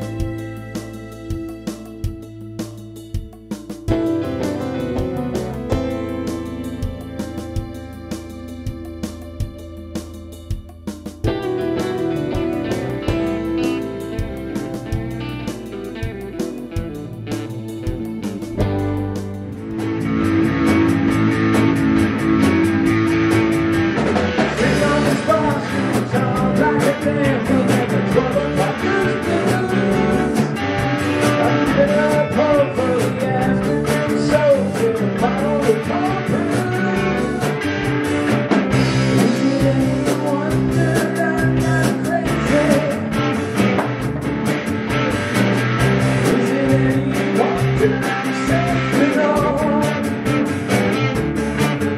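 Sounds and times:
bass guitar: 0.0s - 51.9s
drums: 0.0s - 51.9s
electric guitar: 0.0s - 51.9s
man singing: 24.4s - 38.1s, 38.8s - 43.6s, 46.1s - 50.6s.

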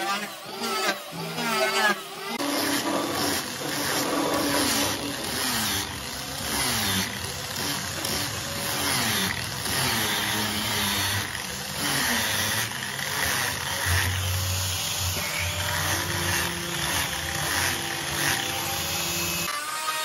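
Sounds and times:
angle grinder sanding wood: 0.0s - 20.0s.

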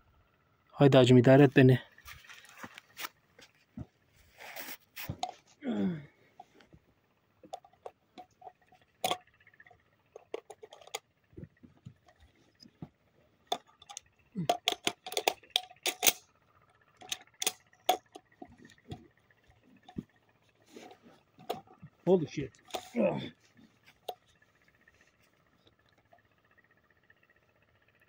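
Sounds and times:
shotgun clicks and metallic rattles: 7.5s - 11.1s, 13.5s - 19.1s, 22.5s - 23.0s.

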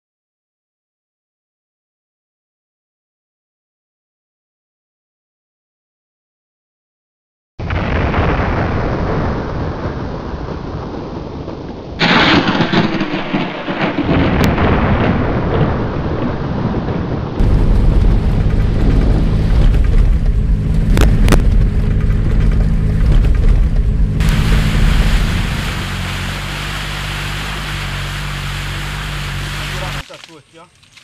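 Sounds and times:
rain: 7.6s - 31.0s
wind: 7.6s - 31.0s
pickup truck engine running: 17.4s - 30.0s.

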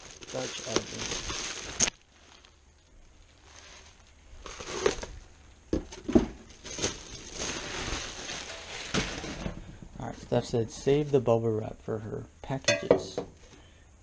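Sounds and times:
bubble wrap crinkling: 0.0s - 5.7s, 6.4s - 10.4s.

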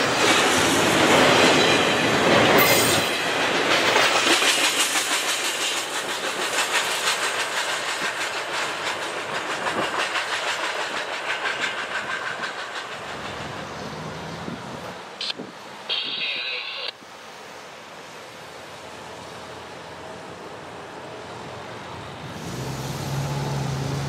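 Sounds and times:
train wheels clicking on rails: 0.0s - 16.5s
freight train rolling past: 0.0s - 24.0s.

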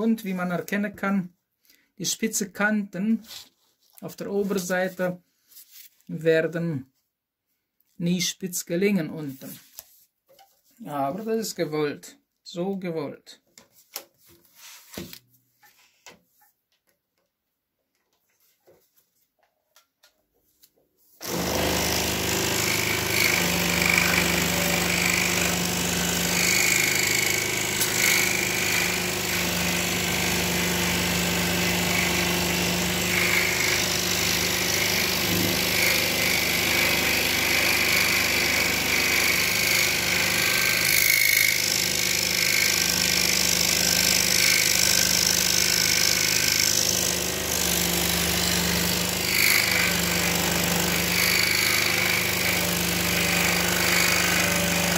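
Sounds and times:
scroll saw cutting wood: 21.2s - 54.9s.

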